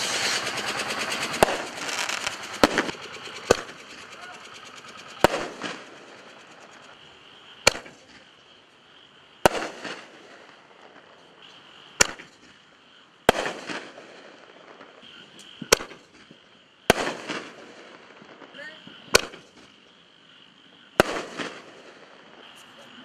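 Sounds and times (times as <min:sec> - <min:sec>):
firework shell bursting bang: 0:00.0 - 0:04.4, 0:05.1 - 0:06.7, 0:07.6 - 0:08.2, 0:12.0 - 0:12.5
steady high chirring: 0:00.0 - 0:23.0.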